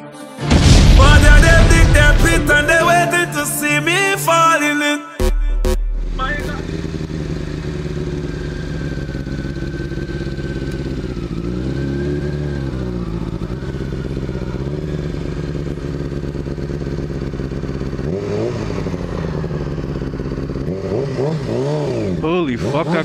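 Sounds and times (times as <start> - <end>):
motorcycle engine revving: 5.2 - 23.0.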